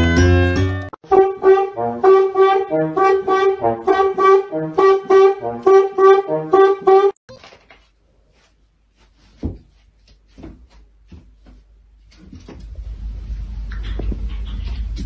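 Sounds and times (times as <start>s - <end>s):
bouncy brass tune: 0.1s - 7.2s.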